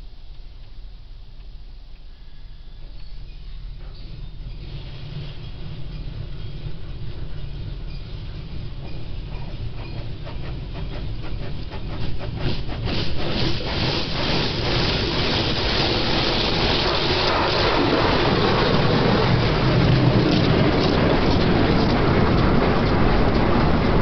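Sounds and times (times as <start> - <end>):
water jets spraying on car: 12.7 - 19.7.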